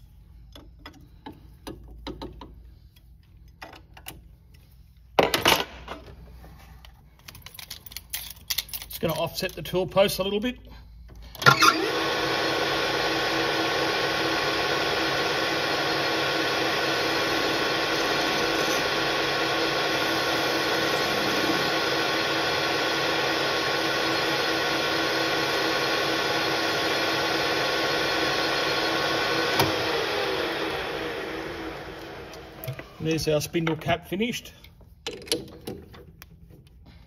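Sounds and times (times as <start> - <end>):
lathe motor whine: 11.4 - 33.0.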